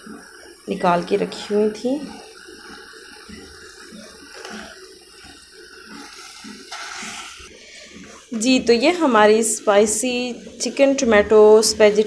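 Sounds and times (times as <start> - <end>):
wet squelching and sizzling: 0.0 - 12.0
loud hiss: 5.9 - 8.3.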